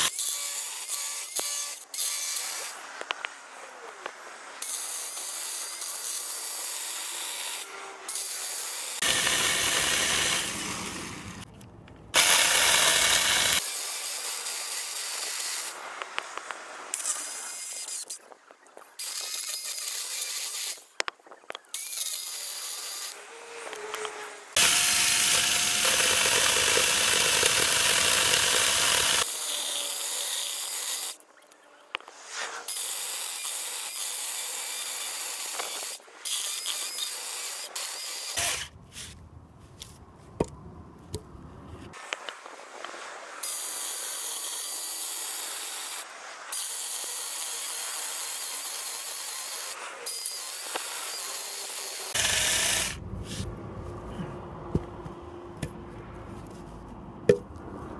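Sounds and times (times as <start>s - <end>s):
mini chainsaw cutting log: 0.0s - 11.5s, 12.1s - 16.1s, 21.7s - 31.2s, 32.0s - 39.2s, 43.4s - 53.4s.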